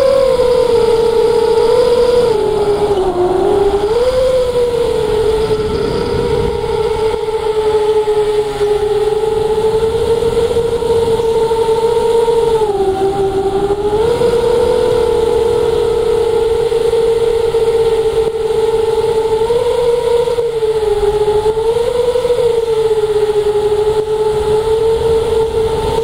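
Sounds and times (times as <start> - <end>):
model plane motor whining: 0.0 - 26.0
wind rushing: 2.0 - 16.7.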